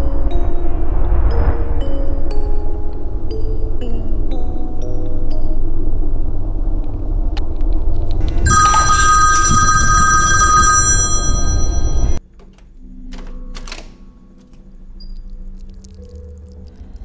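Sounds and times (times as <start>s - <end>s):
low rumbling drone: 0.0s - 12.2s
piercing high ringing tone: 8.2s - 12.2s.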